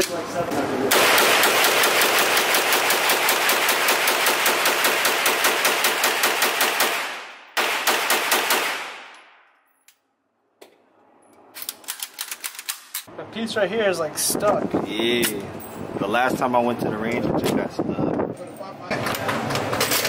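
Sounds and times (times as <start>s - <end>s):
rapid gunshots indoors: 0.9s - 9.4s.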